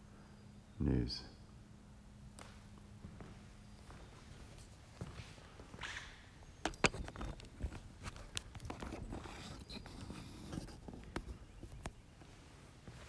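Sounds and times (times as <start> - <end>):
footsteps: 2.4 - 6.0, 12.2 - 13.0.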